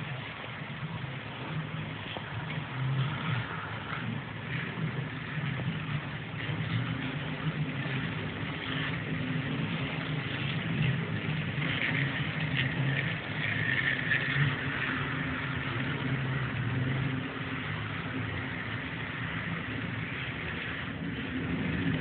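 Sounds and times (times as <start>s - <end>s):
model train humming: 0.0s - 22.0s.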